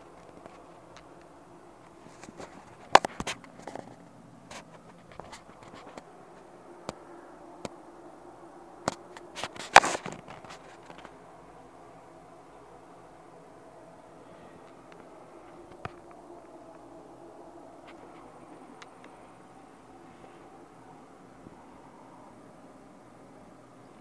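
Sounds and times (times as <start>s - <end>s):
handling noise on fabric: 8.9s - 11.2s.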